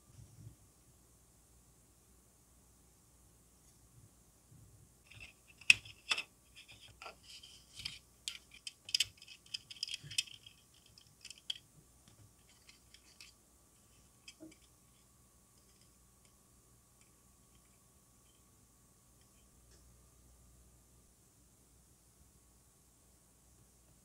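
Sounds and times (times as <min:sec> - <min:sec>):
plastic parts and tweezers clicking: 0:05.1 - 0:15.0.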